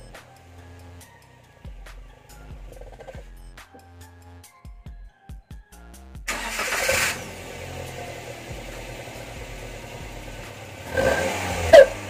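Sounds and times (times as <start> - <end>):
music: 0.0 - 12.0
pickup engine starting and idling: 6.3 - 12.0.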